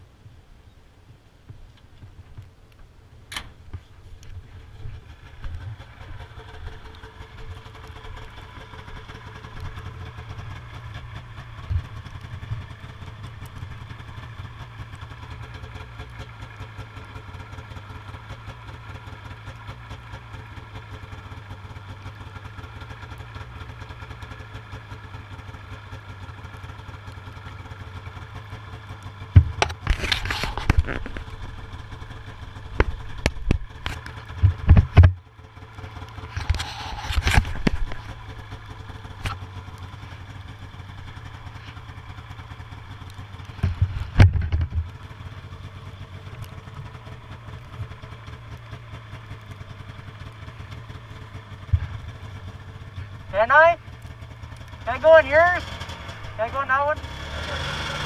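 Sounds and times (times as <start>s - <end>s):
snowmobile engine idling: 1.4s - 58.0s
scraping and rustling: 29.4s - 31.5s, 36.2s - 38.2s.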